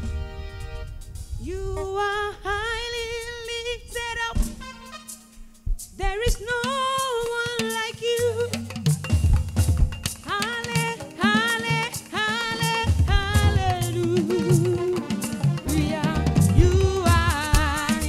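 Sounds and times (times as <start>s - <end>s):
bass: 0.0s - 2.7s, 8.2s - 10.2s, 12.9s - 14.8s, 15.4s - 18.0s
drums: 0.0s - 18.0s
woman singing high held notes: 1.4s - 4.8s.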